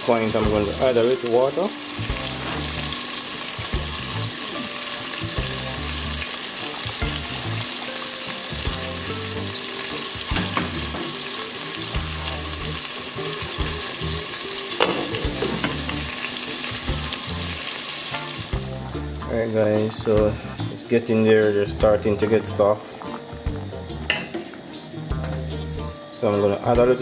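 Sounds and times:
pot of beans boiling: 0.0 - 21.4, 22.0 - 25.3
glass pot lid clinking: 14.8 - 15.8.

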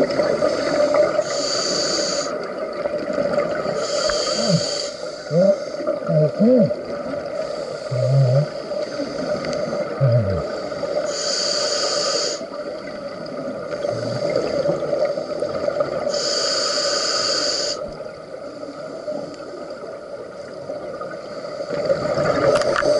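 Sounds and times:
scuba regulator hissing inhalations: 0.4 - 2.4, 3.8 - 6.7, 7.4 - 12.6, 16.1 - 17.9
bubbling gurgles: 2.1 - 10.7.

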